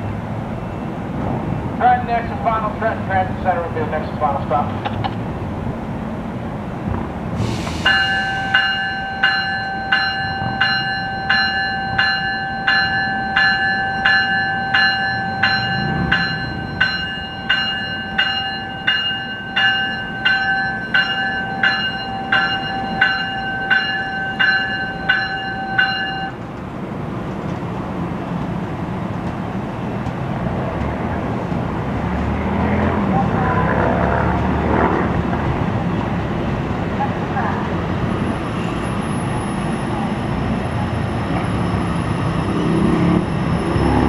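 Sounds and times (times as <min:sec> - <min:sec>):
train rumbling on tracks: 0:00.0 - 0:44.0
train warning bell ringing: 0:07.8 - 0:26.4.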